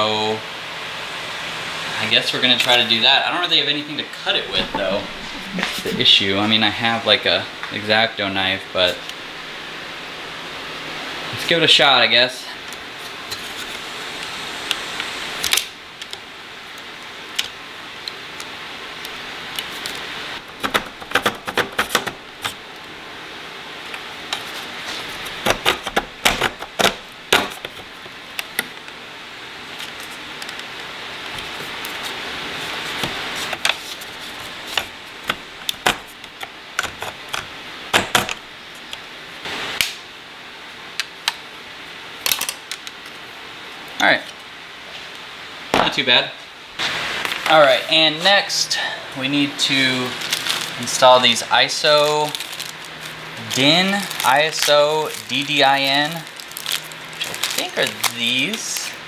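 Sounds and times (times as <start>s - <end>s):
background hiss: 43.4s - 59.0s.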